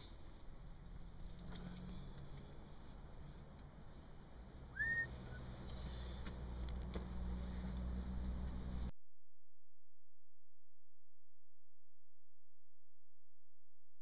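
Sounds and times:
faint low rumble: 0.0s - 8.9s
whistle-like chirp: 4.7s - 5.4s.

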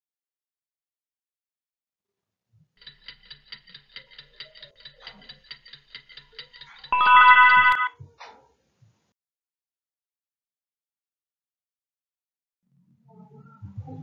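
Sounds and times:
alarm clock ticking: 2.8s - 7.9s
alarm clock ringing: 2.8s - 8.0s.

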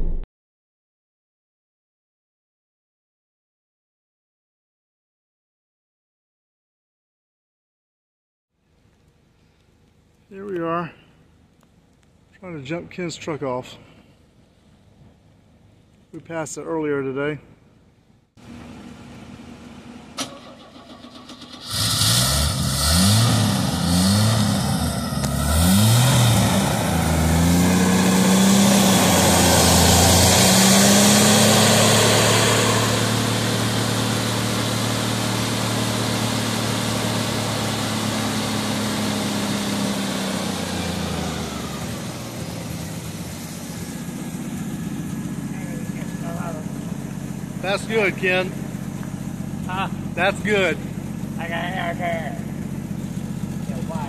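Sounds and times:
pickup engine revving: 18.4s - 54.0s.

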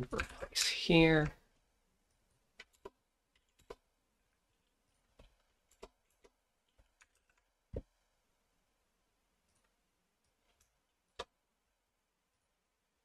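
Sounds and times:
keyboard and mouse clicks: 0.0s - 0.5s, 2.6s - 3.8s, 4.6s - 7.9s.

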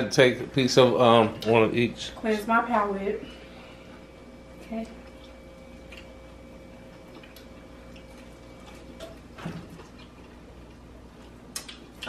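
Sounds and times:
thin steady hum: 0.0s - 12.0s
people eating: 3.2s - 12.0s.

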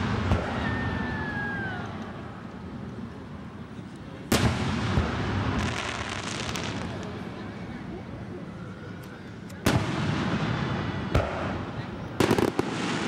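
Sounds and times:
firework burst rumble: 0.0s - 1.5s, 4.2s - 7.4s, 9.7s - 13.0s
faint firework crackles: 0.0s - 13.0s.

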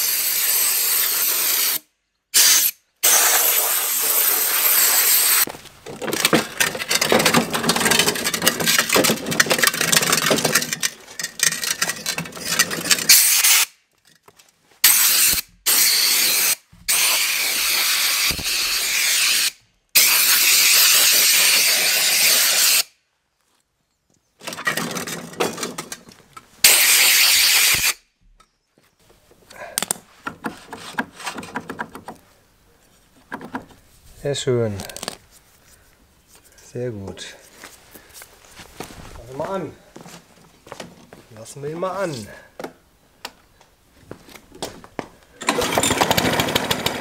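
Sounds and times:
hose water spraying and splashing: 2.4s - 5.5s, 14.8s - 22.9s, 26.6s - 28.0s.

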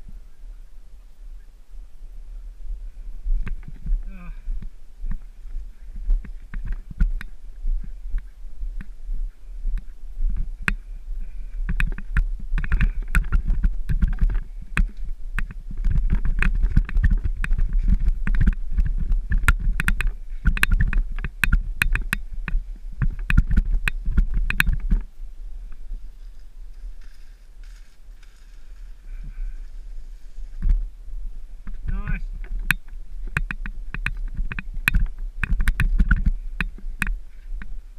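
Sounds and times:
wind rumble on microphone: 0.0s - 37.9s
mountain bike clattering over rough ground: 9.8s - 30.9s, 31.6s - 37.9s.

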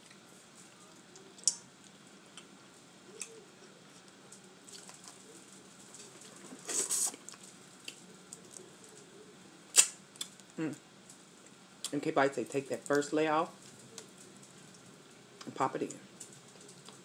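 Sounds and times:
shells being cracked and peeled: 9.7s - 10.6s.

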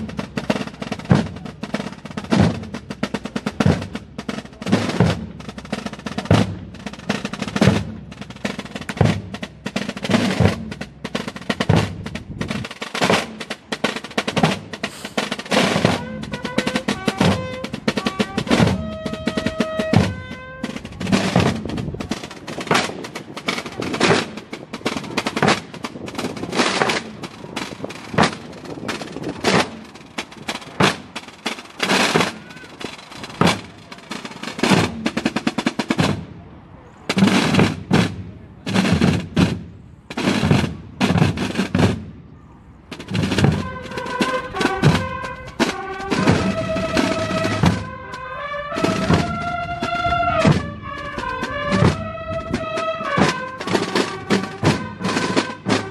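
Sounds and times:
marching field drums: 0.0s - 55.9s
trumpets holding notes: 14.8s - 22.2s, 31.8s - 35.2s, 42.9s - 55.9s.

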